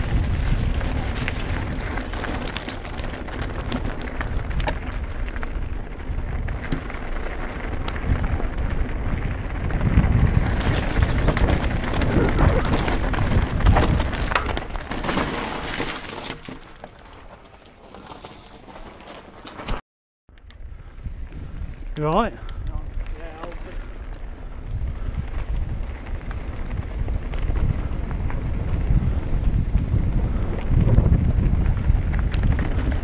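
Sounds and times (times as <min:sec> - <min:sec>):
wind rumble on microphone: 0:00.0 - 0:14.9, 0:20.3 - 0:33.0
bike clattering: 0:00.0 - 0:19.8
bike tyres crunching over stones: 0:00.0 - 0:33.0.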